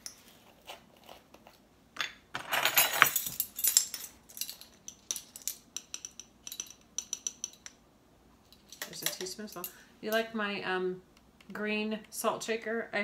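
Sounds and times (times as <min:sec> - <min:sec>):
metal measuring spoon clinking: 0:02.9 - 0:07.8.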